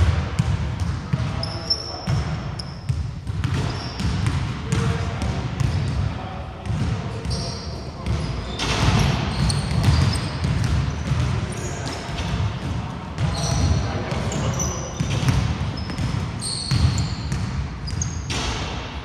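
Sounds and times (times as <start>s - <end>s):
basketball bouncing: 0.0s - 1.3s, 2.9s - 6.0s, 8.0s - 14.4s, 15.0s - 18.5s
players' voices: 0.1s - 2.8s, 3.5s - 17.1s
sneaker squeaks: 0.8s - 4.4s, 5.6s - 6.0s, 6.7s - 18.8s.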